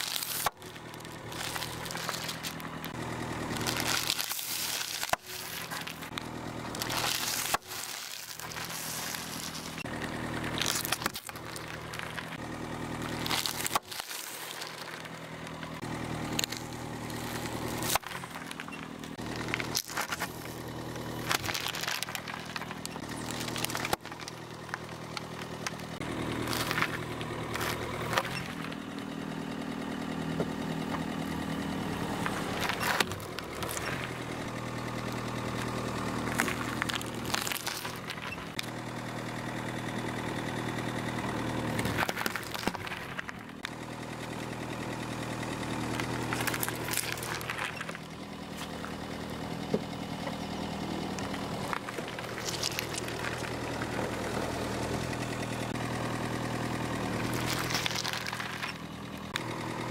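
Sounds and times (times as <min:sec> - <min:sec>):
vegetables cracking under tyre: 0:00.0 - 0:28.8, 0:32.2 - 0:38.8, 0:41.6 - 0:43.8, 0:45.4 - 0:49.0, 0:51.2 - 0:55.0, 0:56.8 - 0:59.5
car engine idling: 0:00.0 - 0:59.9.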